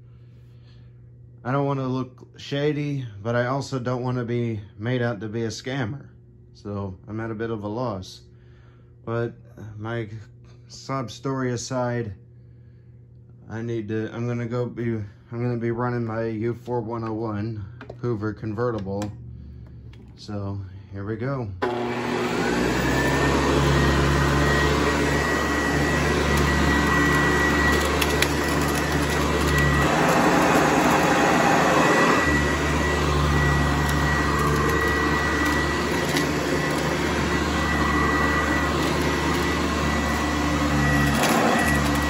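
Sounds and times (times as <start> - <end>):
vacuum cleaner motor whine: 21.6 - 42.0.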